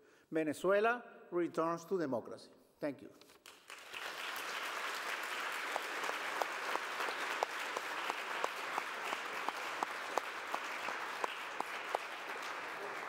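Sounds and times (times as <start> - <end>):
audience applause in hall: 3.4 - 13.0
nearby hands clapping: 3.4 - 13.0.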